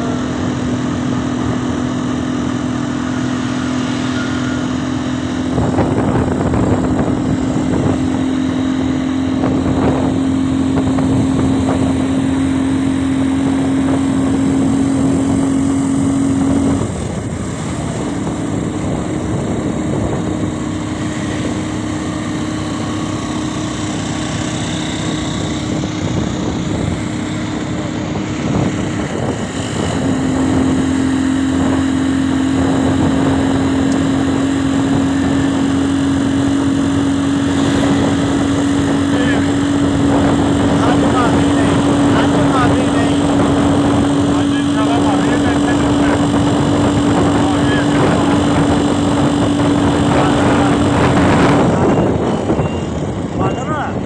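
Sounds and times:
small vehicle engine hum: 0.0 - 54.0
wind and road noise: 0.0 - 54.0.

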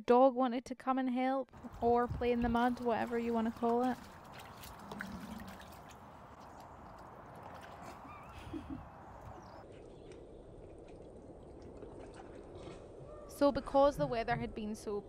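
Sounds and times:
dog lapping in water: 1.6 - 9.9, 10.6 - 12.9
water clicks: 1.6 - 13.0.

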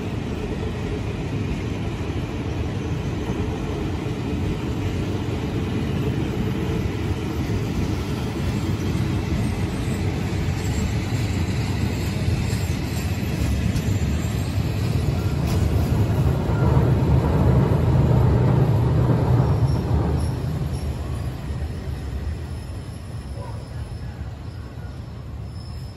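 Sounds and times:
train coaches rumbling on rails: 0.0 - 25.9.

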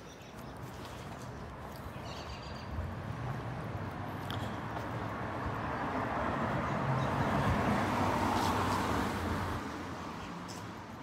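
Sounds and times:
tyres hissing on wet pavement: 8.0 - 9.6.

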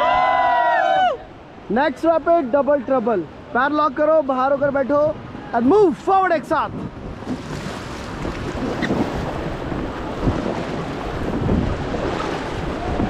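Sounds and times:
rushing river water: 0.0 - 13.0
wind buffeting microphone: 5.0 - 13.0.

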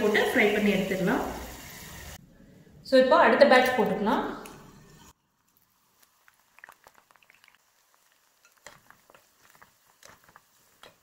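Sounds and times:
food crackling in frying oil: 0.0 - 2.2, 5.0 - 11.0.

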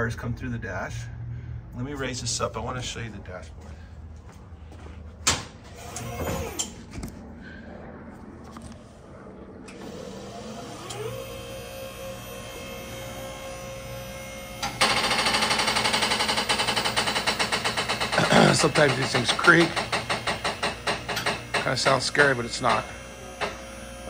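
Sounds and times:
electric pump motor whine: 5.6 - 7.2, 8.1 - 24.0
fast-pulsing creak of car lift: 14.6 - 23.6.

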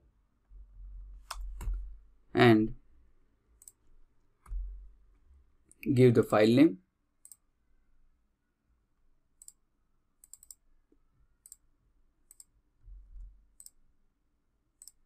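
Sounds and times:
computer mouse clicks: 1.2 - 1.8, 3.6 - 4.6, 7.2 - 7.4, 9.4 - 9.6, 10.2 - 10.6, 11.4 - 12.5, 13.2 - 13.8, 14.8 - 15.0.

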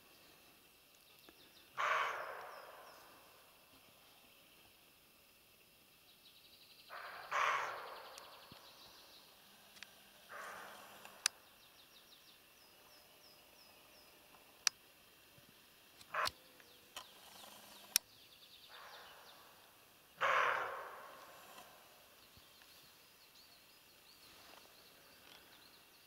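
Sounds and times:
songbirds singing: 0.0 - 26.0
deer alarm barks: 1.8 - 3.0, 6.9 - 8.3, 10.3 - 11.2, 16.1 - 16.4, 20.2 - 21.4
sharp clicks: 16.0 - 18.1.

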